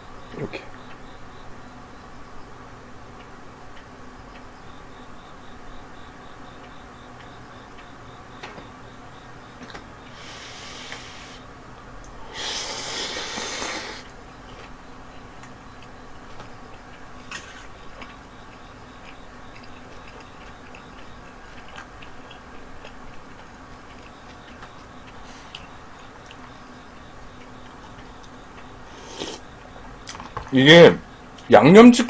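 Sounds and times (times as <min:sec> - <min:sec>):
noodles slurped: 0:12.4 - 0:14.1, 0:29.0 - 0:29.4
close-up chewing with mouth clicks: 0:12.6 - 0:26.6.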